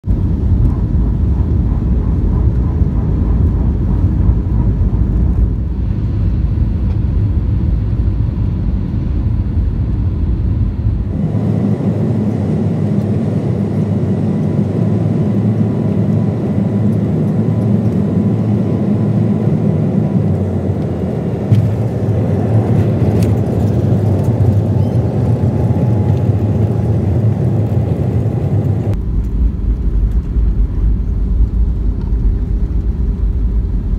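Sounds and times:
runway rollout rumble: 0.0s - 13.6s, 15.4s - 33.9s
jet engine rumble: 0.0s - 33.9s
rushing air: 0.1s - 12.7s.

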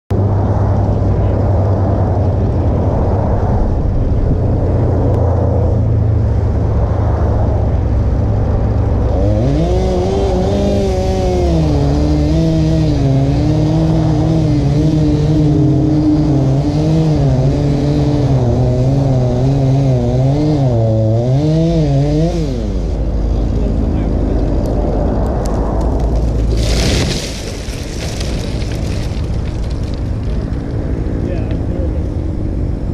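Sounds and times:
low steady rumble: 0.1s - 32.9s
chainsaw cutting wood: 9.2s - 22.9s.

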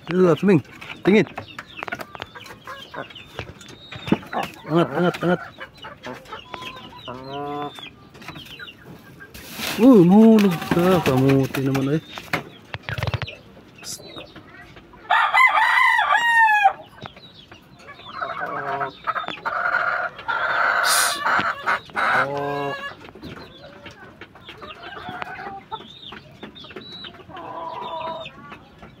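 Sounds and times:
rooster crowing: 15.1s - 16.8s.

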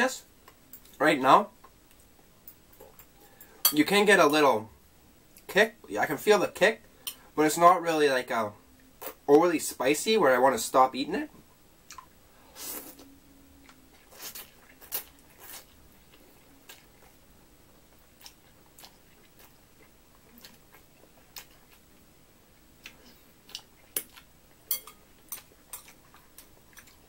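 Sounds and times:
person chewing: 11.9s - 22.0s, 22.8s - 27.0s.

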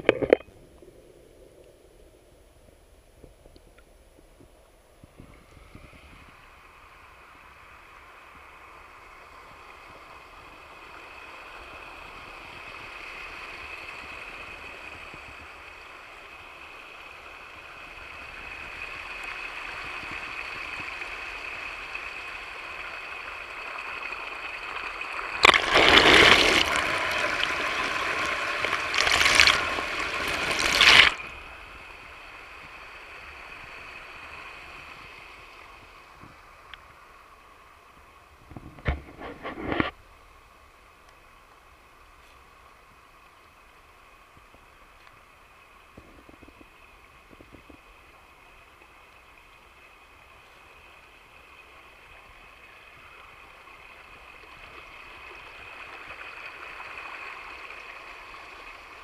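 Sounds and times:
small waterfall splashing: 6.8s - 37.3s, 45.9s - 59.0s.

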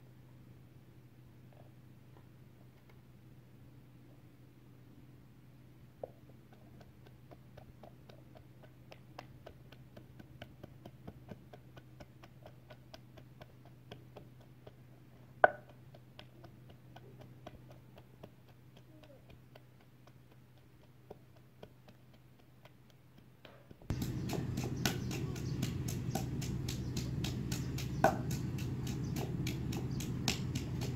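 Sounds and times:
pestle pounding in wooden mortar: 6.0s - 30.9s
faint ticking: 6.4s - 30.9s
low hum: 23.9s - 30.9s.

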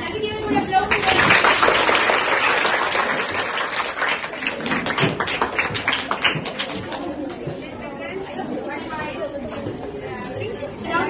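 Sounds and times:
children applauding: 0.9s - 7.4s.

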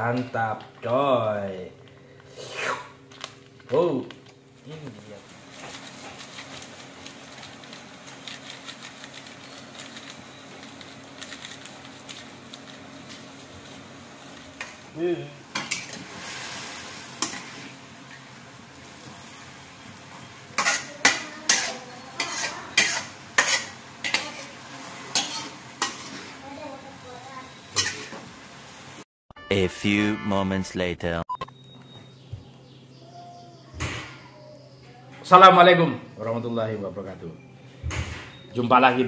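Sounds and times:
vegetables sizzling in wok: 5.0s - 29.0s
metal spatula scraping pan: 20.6s - 26.4s.

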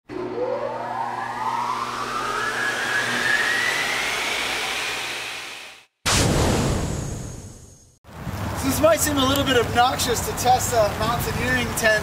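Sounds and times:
whoosh rising in pitch: 0.0s - 7.2s.

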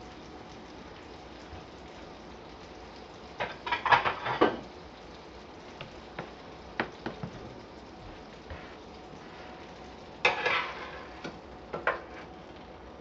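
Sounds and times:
frying sizzle: 0.0s - 13.0s
utensils clattering on cookware: 3.4s - 4.7s, 10.2s - 12.3s.

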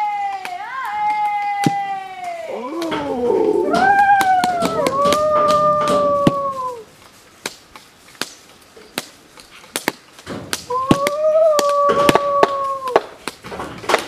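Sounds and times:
long animal call: 2.5s - 6.8s.

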